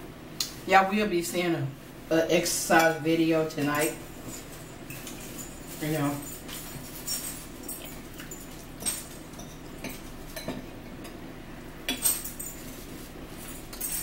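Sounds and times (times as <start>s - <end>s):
low steady hum: 0.0s - 14.0s
forks clinking on plates: 3.7s - 11.2s, 11.9s - 14.0s.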